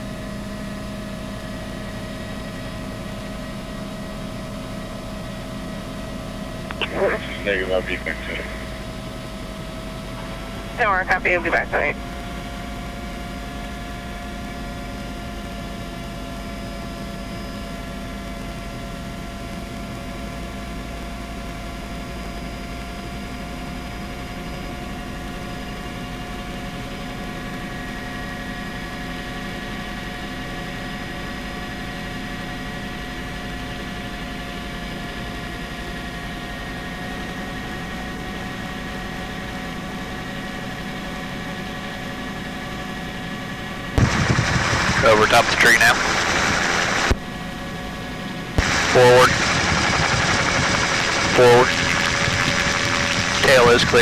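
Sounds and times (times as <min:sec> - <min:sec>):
helicopter engine whine: 0:00.2 - 0:17.8, 0:44.0 - 0:54.0
low rumble: 0:44.0 - 0:47.2, 0:48.6 - 0:54.0.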